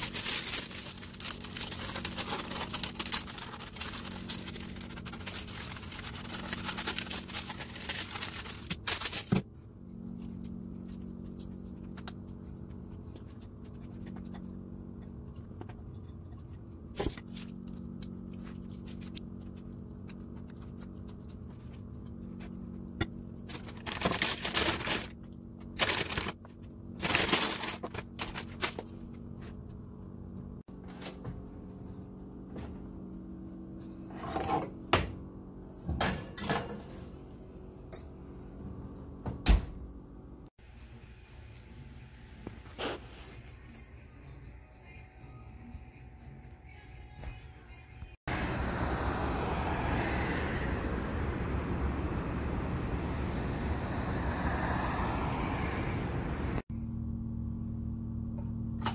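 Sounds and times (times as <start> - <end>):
parchment paper crinkling: 0.0 - 9.4, 23.5 - 29.0
steady low hum: 0.0 - 46.6, 48.3 - 58.9.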